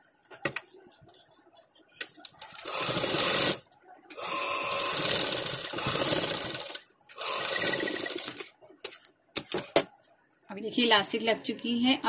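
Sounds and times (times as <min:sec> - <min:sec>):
sewing machine stitching: 0:02.6 - 0:03.6, 0:04.2 - 0:08.5.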